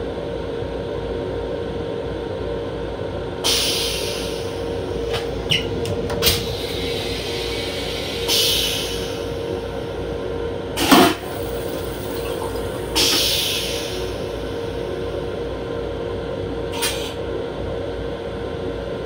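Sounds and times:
railcar hum: 0:00.0 - 0:19.0
toilet flush whoosh: 0:10.8 - 0:14.1
toilet rinse water hissing: 0:10.8 - 0:14.2.

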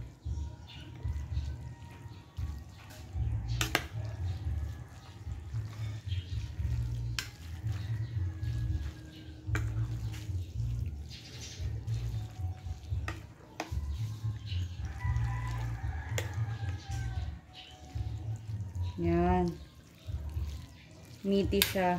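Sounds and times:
wet stirring of spaghetti: 0:00.0 - 0:21.9.

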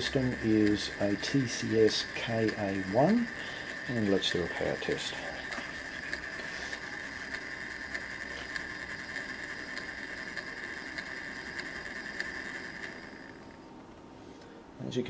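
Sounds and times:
small motor whirring and ticking: 0:00.0 - 0:14.5.

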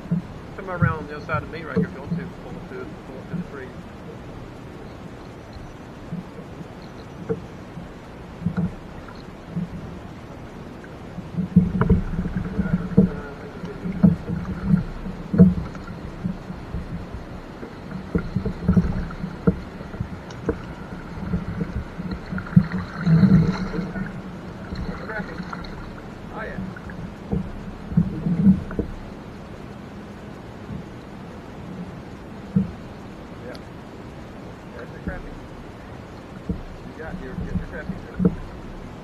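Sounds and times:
paddle strokes through water: 0:00.0 - 0:39.0
knocks and thumps on kayak: 0:06.1 - 0:10.2, 0:10.8 - 0:29.2, 0:32.5 - 0:32.8, 0:36.3 - 0:39.0.

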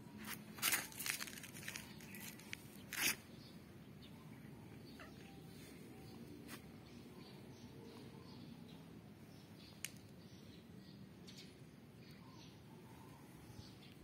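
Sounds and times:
scratchy rustling: 0:00.2 - 0:03.2.

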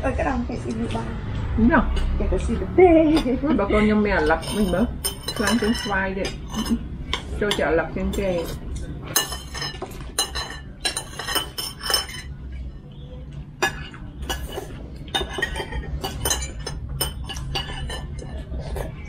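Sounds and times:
spoons clinking against bowls: 0:03.1 - 0:12.7, 0:13.6 - 0:19.0.

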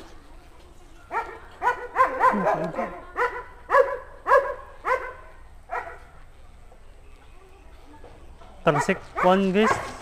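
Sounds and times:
dog barking: 0:01.1 - 0:06.1, 0:08.7 - 0:10.0.

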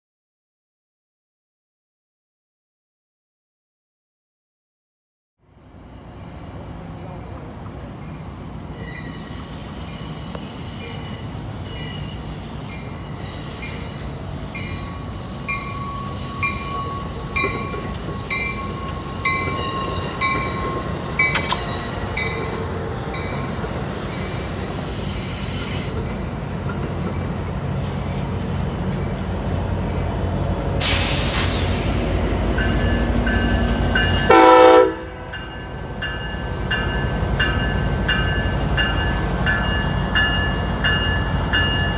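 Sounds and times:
passenger train rolling past: 0:05.5 - 0:41.9
train wheels squealing: 0:08.0 - 0:34.2
train horn blast: 0:34.2 - 0:35.3.

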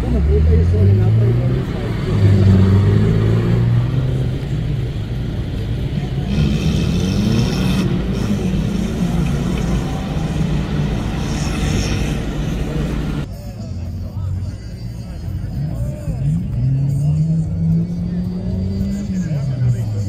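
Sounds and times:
car engine revving: 0:00.0 - 0:13.3, 0:15.5 - 0:20.0.

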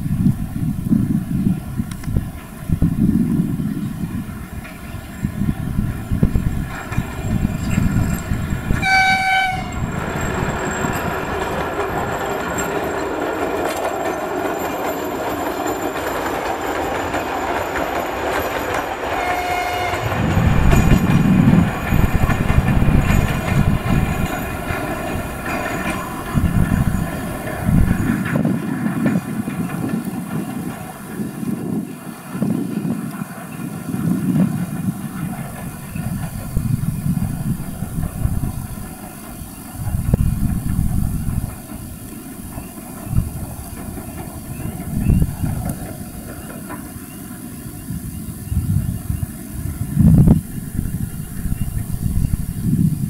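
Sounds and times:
diesel locomotive engines running: 0:00.0 - 0:53.0
train wheels rolling on rails: 0:00.0 - 0:53.0
locomotive horn blast: 0:08.7 - 0:09.9, 0:19.2 - 0:20.2.

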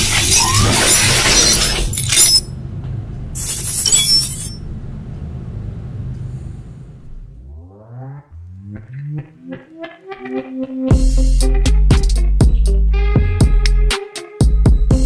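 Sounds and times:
shattering crash: 0:00.0 - 0:02.5
low drone: 0:05.5 - 0:09.9.

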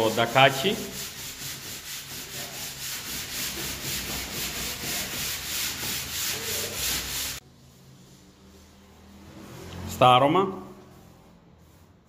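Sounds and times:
sanding sponge strokes: 0:00.0 - 0:07.8, 0:10.9 - 0:12.0.

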